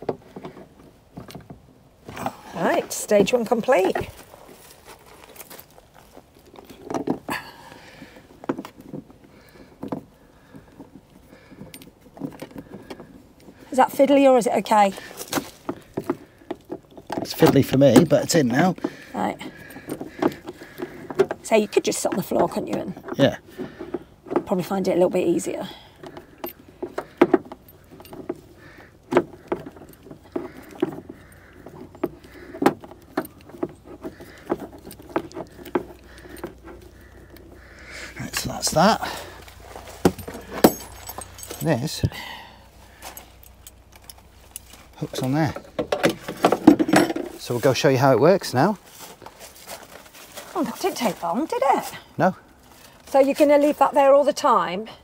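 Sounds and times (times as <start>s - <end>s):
metal keys clicking and rattling: 40.2s - 42.1s.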